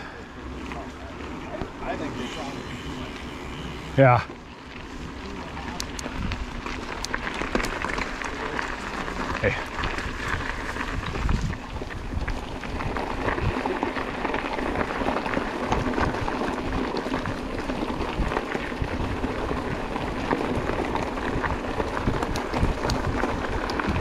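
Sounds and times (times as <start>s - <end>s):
bike tyres clicking and crackling: 0.0s - 24.0s
wind buffeting microphone: 5.0s - 7.6s, 9.2s - 24.0s.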